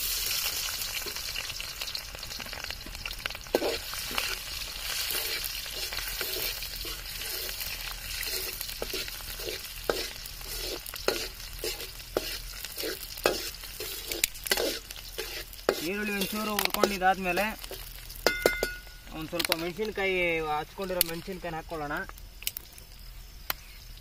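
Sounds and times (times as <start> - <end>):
onions sizzling in oil: 0.0 - 24.0
metal spatula scraping pan: 3.5 - 18.9.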